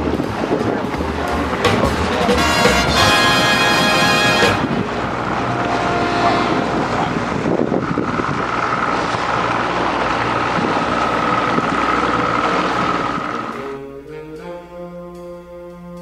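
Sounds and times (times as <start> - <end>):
outboard motor running: 0.0 - 13.9
steady high whine: 3.3 - 14.1
wind buffeting microphone: 4.4 - 13.7.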